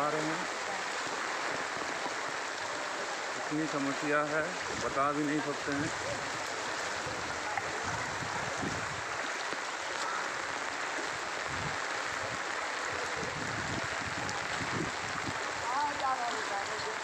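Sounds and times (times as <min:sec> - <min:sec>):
wading through water sloshing: 0:05.4 - 0:12.7.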